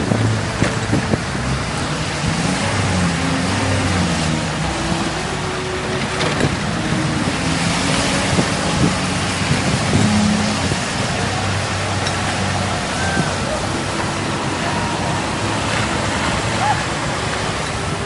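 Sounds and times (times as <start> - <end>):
truck engine revving: 0.0 - 18.0.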